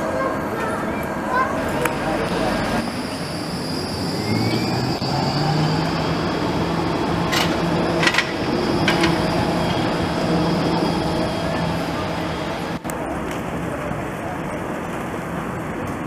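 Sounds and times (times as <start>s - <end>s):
street noise: 0.0s - 16.0s
tram passing humming: 0.0s - 16.0s
faint rising whine: 2.0s - 12.8s.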